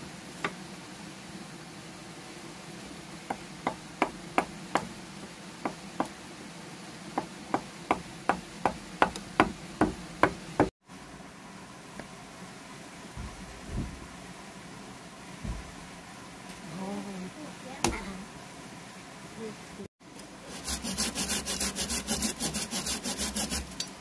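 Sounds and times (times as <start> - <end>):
hammer striking chisel into log: 7.5 - 10.7.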